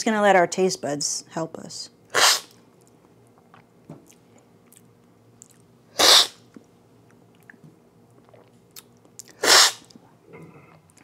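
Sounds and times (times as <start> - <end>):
hissing coffee slurp: 9.4 - 9.8.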